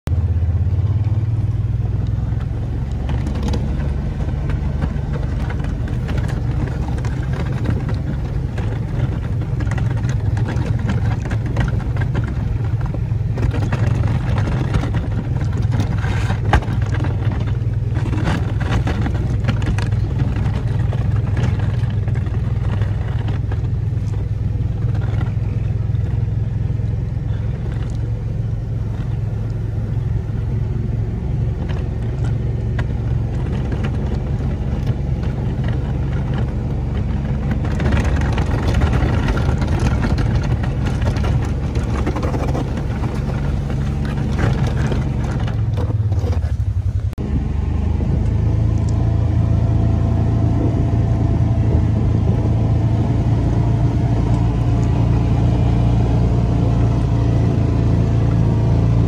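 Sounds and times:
utility vehicle engine droning: 0:00.0 - 0:59.0
knocks and rattles: 0:02.2 - 0:29.4, 0:30.0 - 0:47.2.

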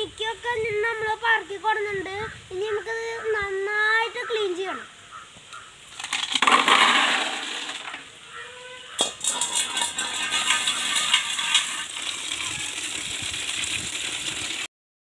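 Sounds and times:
tap water pouring and splashing: 0:05.9 - 0:08.1, 0:09.0 - 0:14.7
snail shells clattering: 0:06.0 - 0:08.0, 0:09.1 - 0:12.6.

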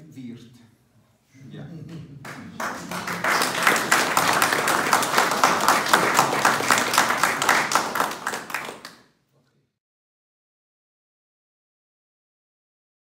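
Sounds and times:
audience applauding: 0:02.2 - 0:09.0.

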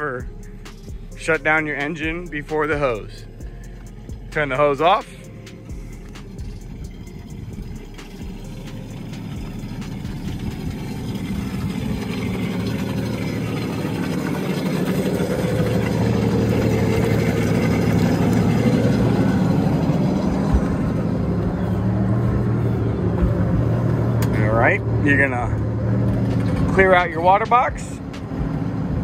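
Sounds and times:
boat engine idling: 0:00.0 - 0:29.0.

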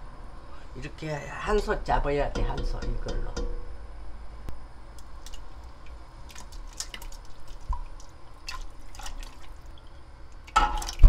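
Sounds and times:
liquid dripping and splashing: 0:04.9 - 0:11.0.

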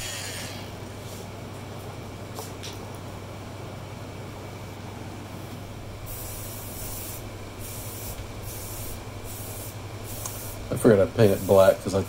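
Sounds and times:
low steady hum: 0:00.0 - 0:12.0
spray paint can hissing: 0:06.1 - 0:11.8
hand brushing sawdust off wood: 0:08.0 - 0:11.8.

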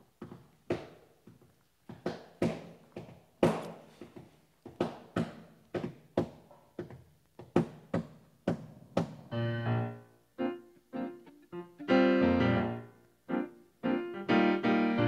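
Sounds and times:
footsteps on hard floor: 0:00.2 - 0:09.3.

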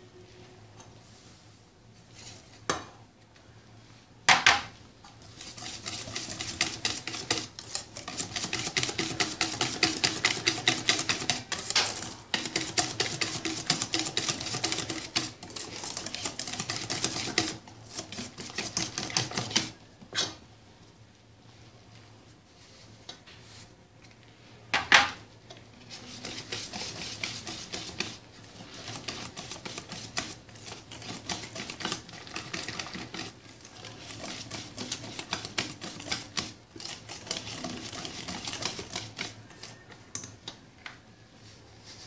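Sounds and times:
whisk clicking against metal bowl: 0:05.4 - 0:19.8, 0:26.2 - 0:40.4.

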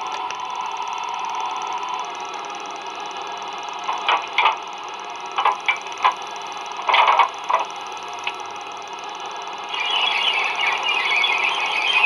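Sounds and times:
metallic clanks and rattles: 0:03.8 - 0:04.6, 0:05.4 - 0:06.2, 0:06.8 - 0:07.8.

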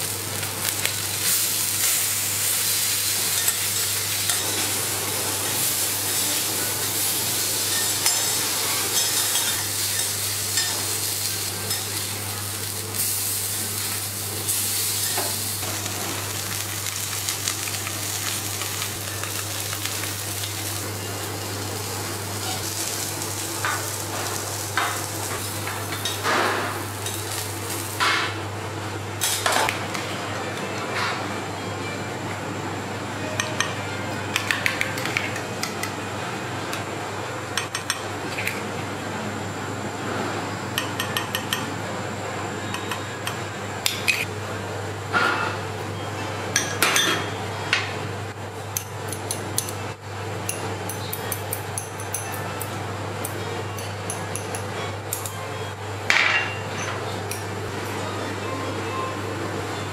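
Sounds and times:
fish sizzling on a hot griddle: 0:00.0 - 0:28.0.

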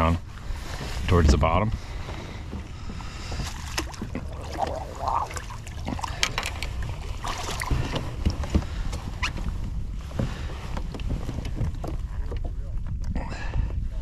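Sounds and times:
low wind rumble: 0:00.0 - 0:14.0
water splashes: 0:03.2 - 0:08.4.

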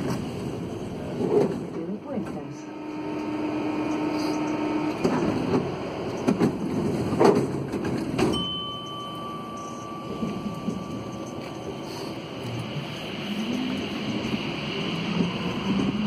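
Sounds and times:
steady high tone: 0:08.4 - 0:14.2
low rumble: 0:08.4 - 0:16.0.

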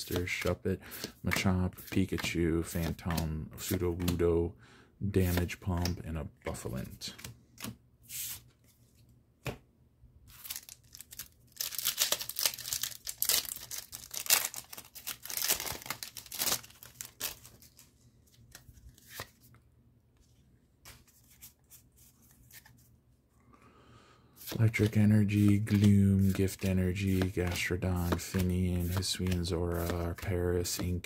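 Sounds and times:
cards rustling and clicking: 0:00.0 - 0:04.3, 0:05.2 - 0:09.6, 0:10.3 - 0:19.6, 0:20.2 - 0:22.9, 0:24.4 - 0:31.0
foil wrapper tearing and crinkling: 0:10.3 - 0:17.8.

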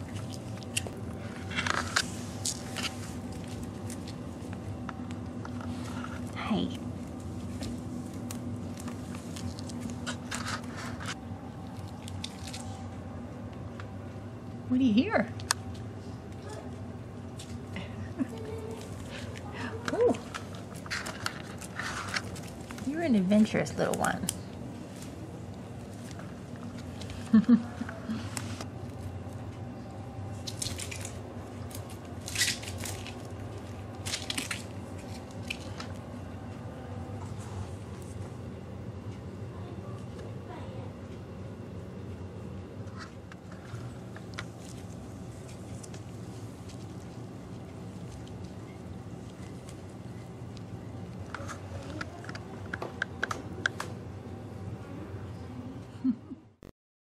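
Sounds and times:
rabbits rustling and scratching: 0:00.0 - 0:12.9, 0:18.3 - 0:25.2
rabbits chewing wicker: 0:00.0 - 0:14.0, 0:15.4 - 0:38.4, 0:42.8 - 0:53.9.

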